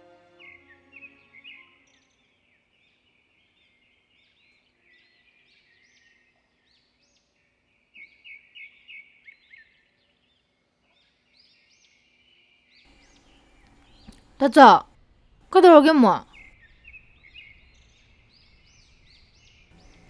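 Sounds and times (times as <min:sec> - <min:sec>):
small birds chirping: 0:17.2 - 0:20.0.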